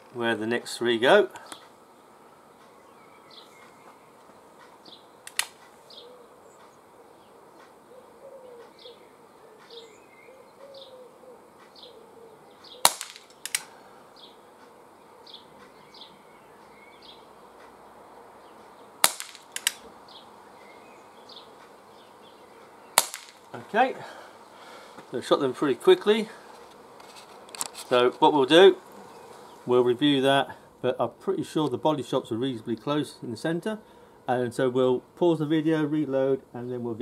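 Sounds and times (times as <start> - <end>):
air pistol shots: 5.3 - 5.6, 12.8 - 13.8, 19.0 - 19.8, 23.0 - 23.5
soft revolver click: 12.9 - 13.7.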